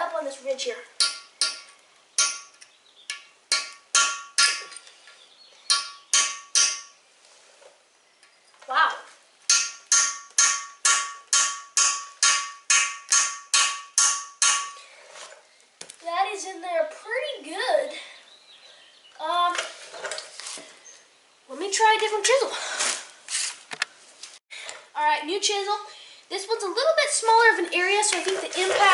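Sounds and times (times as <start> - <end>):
hammer striking a steel punch: 1.0 - 4.8, 5.7 - 6.9, 9.5 - 14.8.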